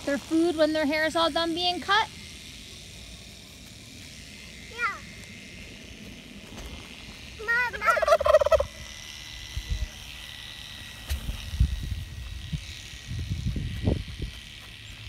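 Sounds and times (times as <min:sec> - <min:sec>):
turkey gobbling: 0:07.8 - 0:08.7.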